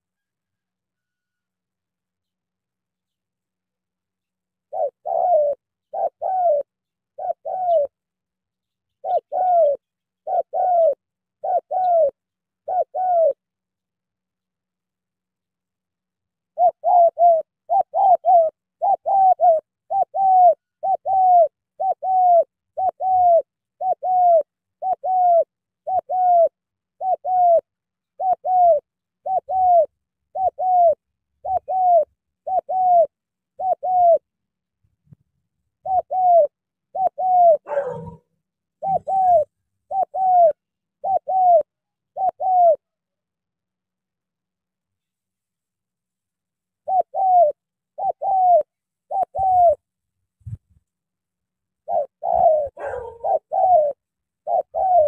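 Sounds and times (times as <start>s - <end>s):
dove cooing: 4.6s - 8.0s, 8.9s - 13.5s, 16.5s - 34.4s, 35.7s - 42.9s, 46.8s - 49.8s, 51.8s - 55.0s.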